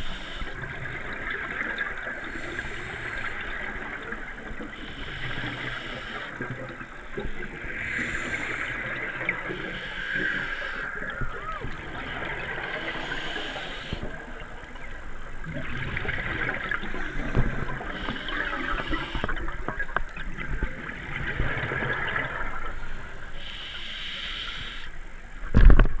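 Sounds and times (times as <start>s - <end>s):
regulator inhalation hiss: 0.0s - 0.6s, 2.2s - 3.7s, 4.8s - 6.4s, 7.8s - 11.0s, 12.7s - 14.0s, 17.9s - 19.4s, 23.4s - 25.0s
exhaled bubbles gurgling underwater: 0.0s - 26.0s.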